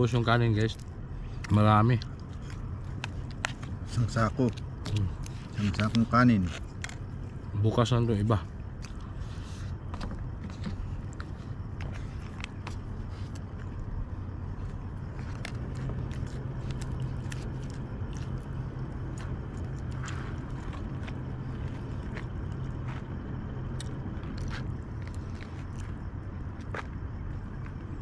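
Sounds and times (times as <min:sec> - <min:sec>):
steady low hum: 0:00.0 - 0:28.0
chewing: 0:14.5 - 0:27.8.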